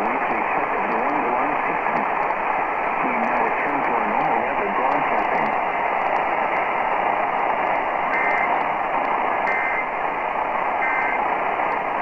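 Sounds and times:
radio static hiss: 0:00.0 - 0:12.0
two-tone data bursts: 0:08.1 - 0:08.6, 0:09.4 - 0:09.9, 0:10.8 - 0:11.2.

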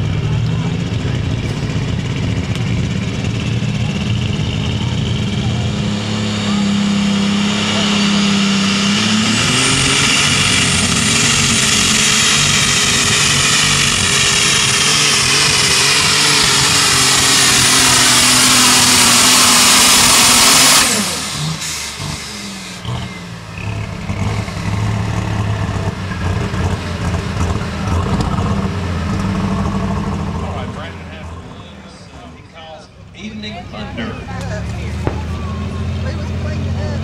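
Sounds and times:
engine uneven idle: 0:00.0 - 0:06.7, 0:19.9 - 0:37.0
tractor engine at full throttle: 0:00.0 - 0:37.0.

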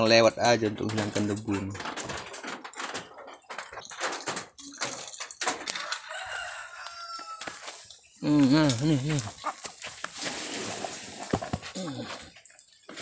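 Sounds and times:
chickens clucking: 0:00.9 - 0:13.0
faint rooster crow: 0:05.7 - 0:07.8
footsteps on dirt: 0:05.8 - 0:12.4.

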